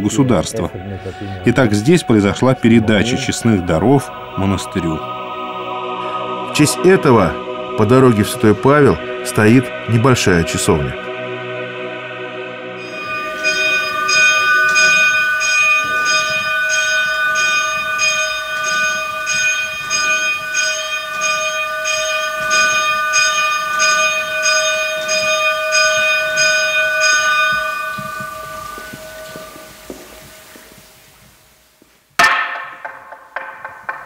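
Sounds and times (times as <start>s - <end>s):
bell ringing: 12.8s - 30.7s.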